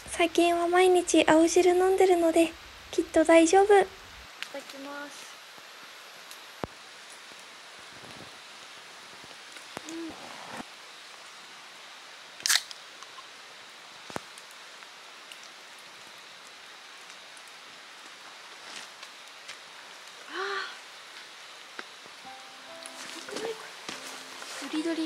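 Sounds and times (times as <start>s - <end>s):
low steady background hiss: 0.0s - 25.0s
drink can hissing open: 12.4s - 12.8s.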